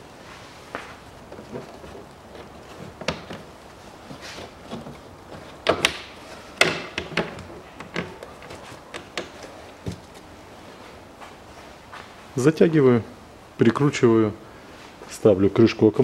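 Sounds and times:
rubber duct and clamp knocking: 0:01.3 - 0:10.3.

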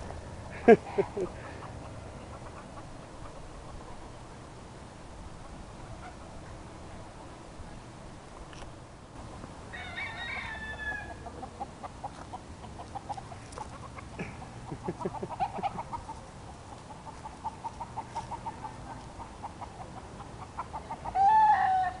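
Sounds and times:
chickens clucking: 0:00.0 - 0:04.2, 0:05.3 - 0:06.6, 0:10.3 - 0:21.9
rooster crowing: 0:09.7 - 0:11.3, 0:21.1 - 0:22.0.

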